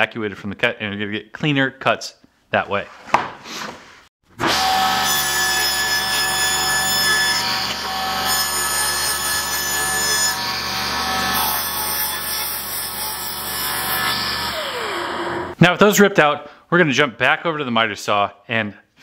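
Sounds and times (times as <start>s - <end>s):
table saw cutting wood: 4.3s - 15.6s
saw winding down: 12.6s - 15.6s.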